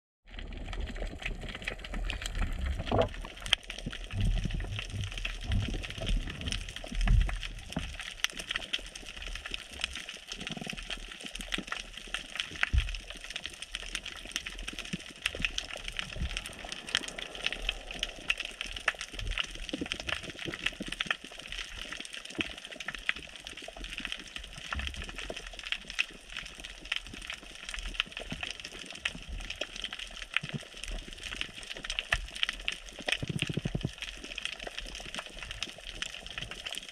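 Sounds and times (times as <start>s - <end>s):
underwater clicking crackle: 0.3s - 36.9s
water rushes and thumps: 1.3s - 8.3s.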